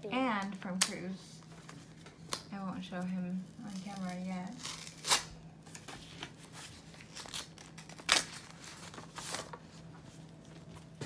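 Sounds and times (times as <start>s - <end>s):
sharp paper crackle: 3.6s - 10.0s
paper rustling and crinkling: 3.6s - 11.0s.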